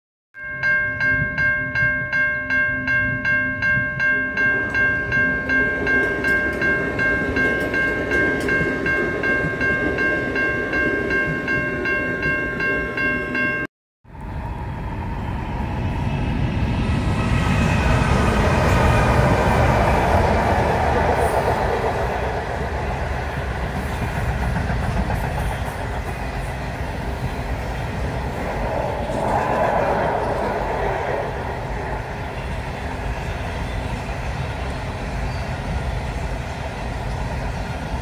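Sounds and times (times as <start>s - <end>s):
level crossing warning bell: 0.4s - 13.7s
diesel locomotives rumbling over bridge: 3.1s - 38.0s.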